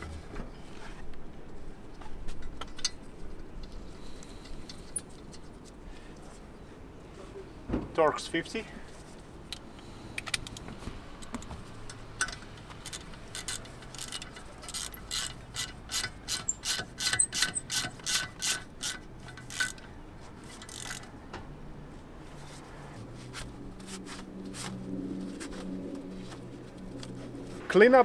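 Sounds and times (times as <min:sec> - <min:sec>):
socket ratchet clicking: 0:11.2 - 0:19.8.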